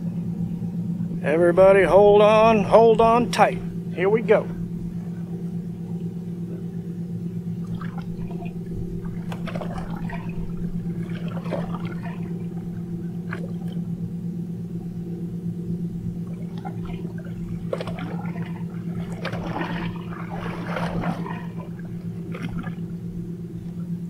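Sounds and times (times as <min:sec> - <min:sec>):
steady low drone: 0:00.0 - 0:24.0
water slapping against a hull: 0:07.4 - 0:24.0.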